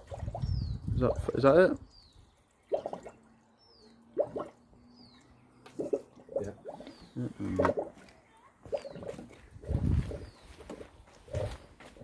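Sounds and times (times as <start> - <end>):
water glugging from watering can: 0.0 - 8.0, 8.6 - 10.2.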